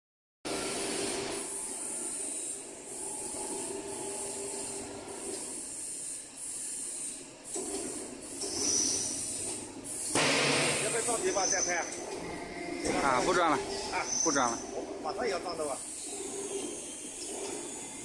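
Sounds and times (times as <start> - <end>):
blender motor hum with hiss: 0.5 - 11.6.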